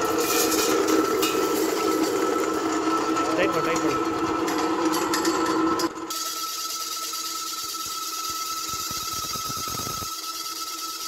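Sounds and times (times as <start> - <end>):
grain pulverizer machine whine: 0.0 - 11.0.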